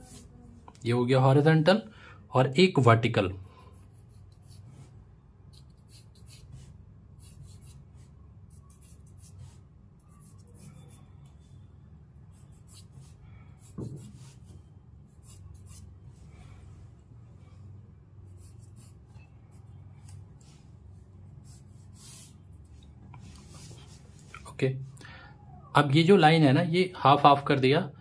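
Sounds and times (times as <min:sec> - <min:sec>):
pencil scratching on paper: 0:00.0 - 0:00.3, 0:03.6 - 0:11.0, 0:12.3 - 0:16.0, 0:18.3 - 0:20.2, 0:21.3 - 0:22.5.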